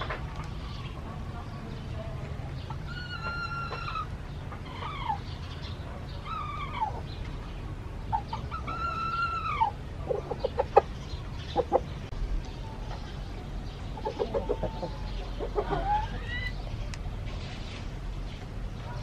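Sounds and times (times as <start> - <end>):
roosters crowing: 2.8 - 5.4, 8.2 - 11.9, 14.0 - 16.6.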